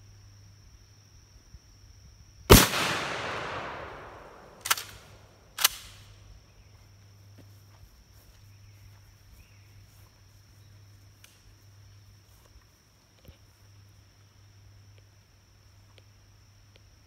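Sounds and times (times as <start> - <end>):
shotgun shot with echo: 2.5 - 5.9
shotgun pump clacks: 4.5 - 5.9.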